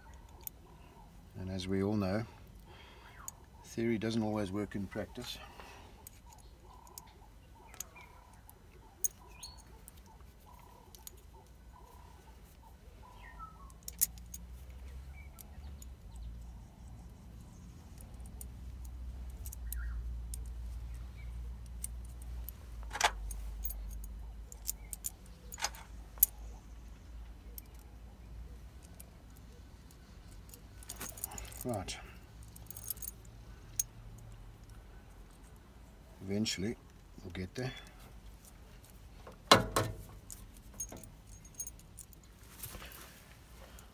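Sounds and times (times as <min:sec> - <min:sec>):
birds chirping: 0:00.0 - 0:39.3
metal clicks and clinks: 0:06.0 - 0:11.9, 0:13.6 - 0:26.6, 0:28.8 - 0:35.6, 0:37.7 - 0:42.4.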